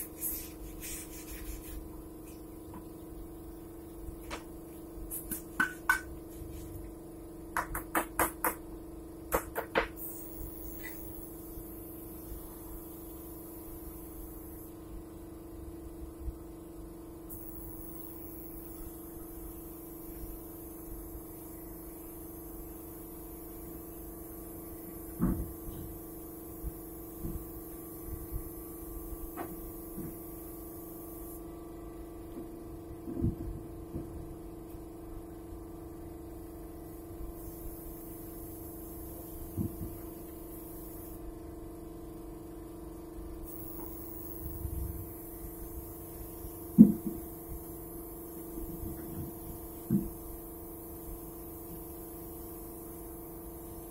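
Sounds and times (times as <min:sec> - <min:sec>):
spray gun hissing: 0:00.0 - 0:02.5, 0:05.0 - 0:06.8, 0:09.8 - 0:14.8, 0:17.3 - 0:31.4, 0:37.4 - 0:41.2, 0:43.5 - 0:53.9
steady low hum: 0:00.0 - 0:53.9
sharp knocks: 0:09.3 - 0:10.0.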